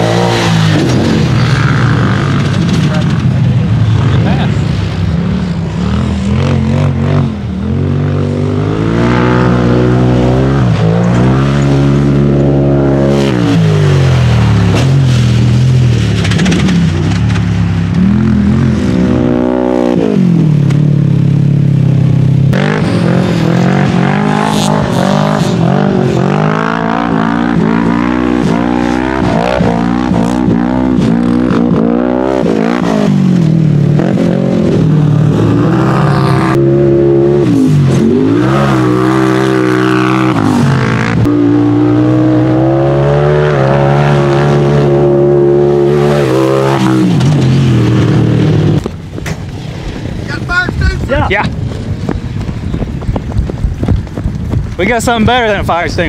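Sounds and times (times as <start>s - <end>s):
off-road engines revving hard: 0.0s - 49.0s.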